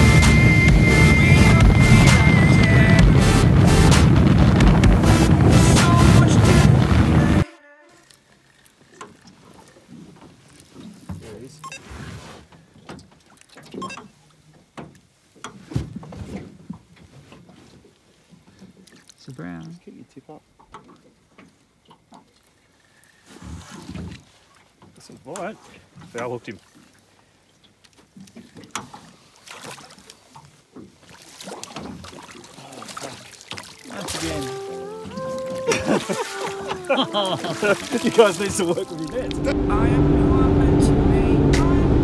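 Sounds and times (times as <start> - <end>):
small water splashes: 8.0 - 11.8, 12.7 - 15.7, 16.7 - 39.4.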